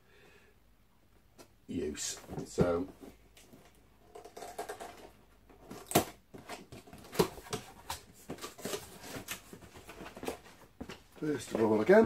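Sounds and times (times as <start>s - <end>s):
cardboard snapping: 5.7s - 9.4s.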